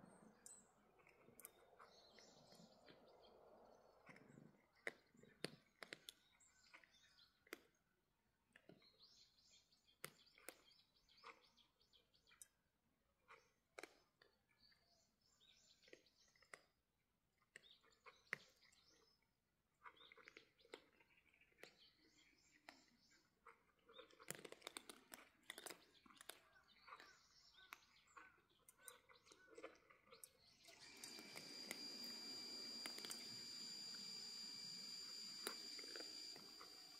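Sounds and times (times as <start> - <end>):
faint bird chirping: 0.0 - 8.0, 8.6 - 16.7, 17.5 - 36.9
cats chewing food: 0.7 - 7.8, 22.6 - 27.1, 27.8 - 36.9.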